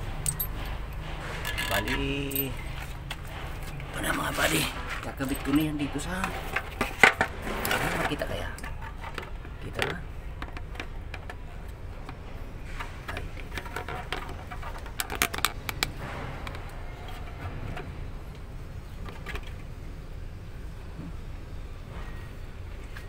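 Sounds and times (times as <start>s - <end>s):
light clicks and clinks: 0.1s - 3.9s.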